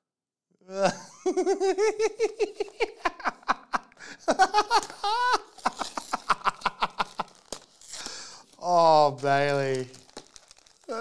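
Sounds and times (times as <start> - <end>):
man giggling: 0.7 - 7.4.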